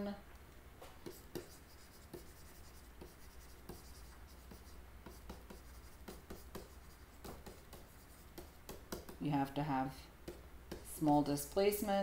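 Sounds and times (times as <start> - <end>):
steady low hum: 0.0 - 12.0
stylus tapping on tablet screen: 3.0 - 9.3.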